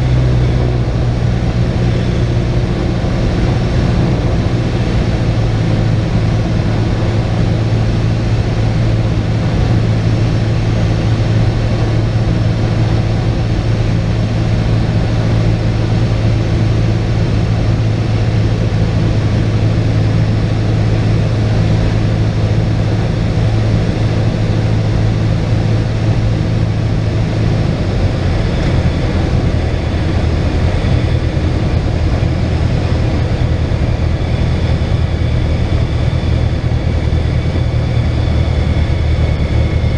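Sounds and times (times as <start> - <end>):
propeller plane engine: 0.0 - 39.9.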